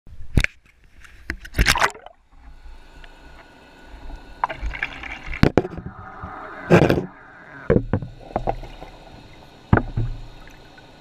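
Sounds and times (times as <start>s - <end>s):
water sloshing and splashing: 1.4s - 2.5s, 3.3s - 11.0s
water bubbling: 3.9s - 11.0s.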